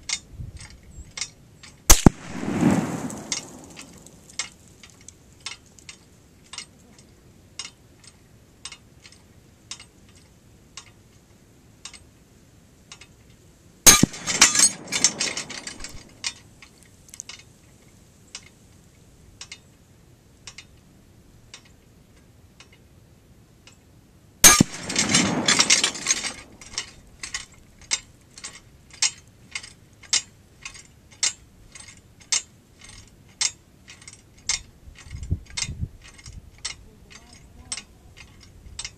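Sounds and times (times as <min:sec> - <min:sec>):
bullet hitting steel target: 0:01.9 - 0:04.3, 0:13.9 - 0:16.2, 0:24.4 - 0:26.9
chains rattling and clinking: 0:14.0 - 0:16.5, 0:24.5 - 0:33.1.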